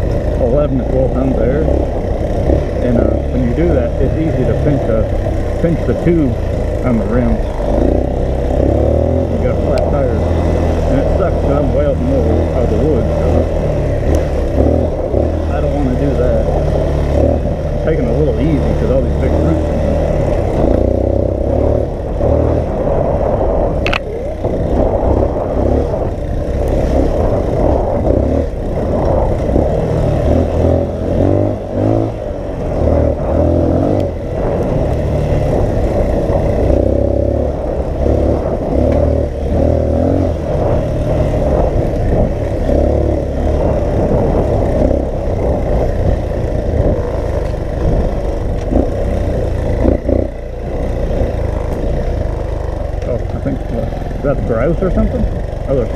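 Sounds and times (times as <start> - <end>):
dirt bike engine revving: 0.0 - 55.9
wind buffeting microphone: 11.6 - 55.9
sharp click: 23.8 - 24.1.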